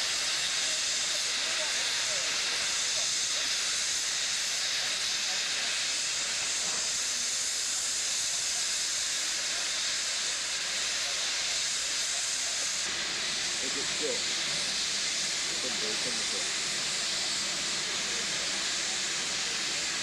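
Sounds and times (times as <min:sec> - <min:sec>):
steam hissing from locomotive: 0:00.0 - 0:20.0.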